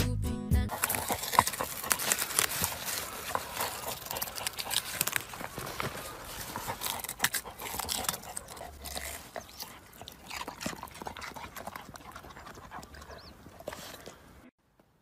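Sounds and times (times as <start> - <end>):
leaves rustling: 0.7 - 10.3
dog digging in soil: 0.7 - 14.2.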